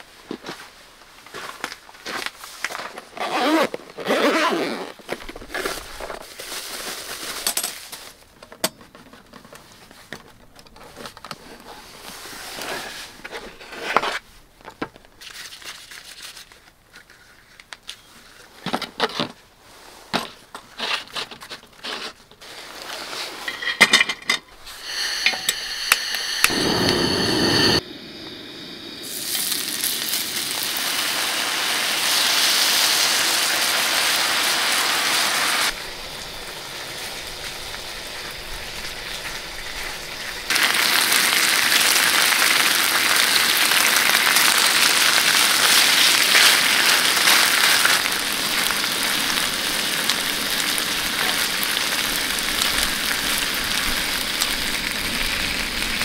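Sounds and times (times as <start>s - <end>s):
zipper case opening: 3.0s - 5.8s
metal stove parts clinking: 23.4s - 24.5s
steak sizzling on a griddle: 29.2s - 56.0s.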